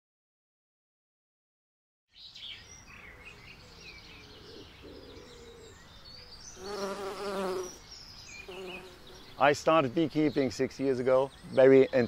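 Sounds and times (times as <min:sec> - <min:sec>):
birds chirping: 0:02.1 - 0:12.0
bees buzzing: 0:06.6 - 0:07.8, 0:08.4 - 0:09.5.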